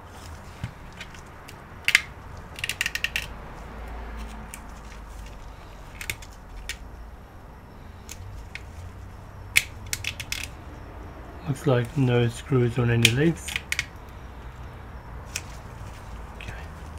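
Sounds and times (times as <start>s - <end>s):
plastic housing clicking: 0.9s - 3.3s, 9.5s - 10.6s.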